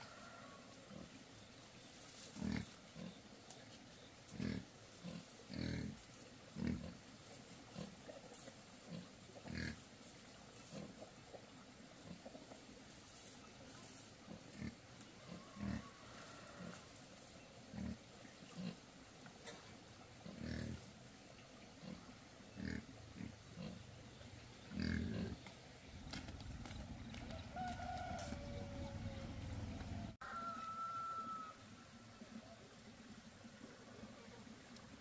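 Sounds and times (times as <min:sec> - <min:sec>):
wild boar grunting: 0:04.3 - 0:07.0, 0:19.6 - 0:20.9, 0:21.8 - 0:23.9, 0:24.6 - 0:25.5.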